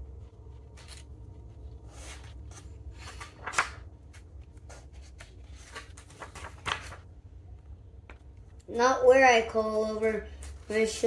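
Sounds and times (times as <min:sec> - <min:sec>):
book pages rustling: 0:00.0 - 0:08.6
steady low hum: 0:00.0 - 0:09.0.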